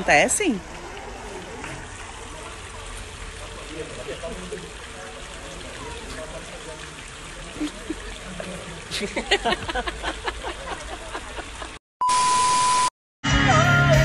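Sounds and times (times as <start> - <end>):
woman and man laughing: 8.9 - 11.8
high beep over hiss: 12.0 - 12.9.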